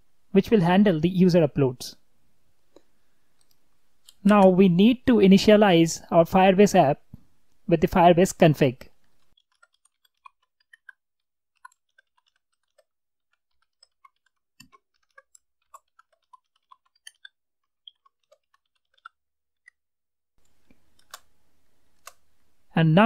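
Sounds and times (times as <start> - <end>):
computer keyboard typing: 9.1 - 11.0, 11.6 - 19.8.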